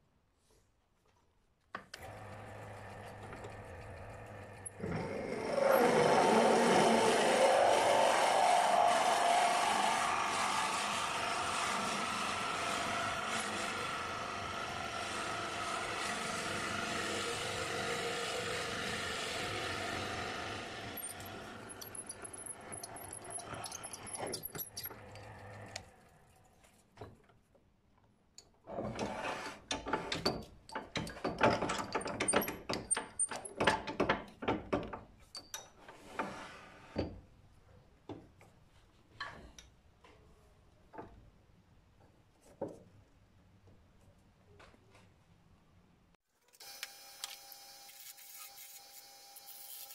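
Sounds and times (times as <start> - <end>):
wood lathe drilling: 2.0 - 25.0
metal lathe parts clicking: 21.0 - 25.2.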